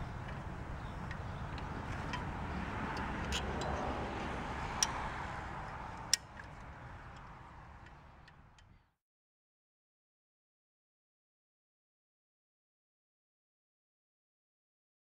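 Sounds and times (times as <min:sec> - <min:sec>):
winch ratchet clicking: 0:00.0 - 0:08.7.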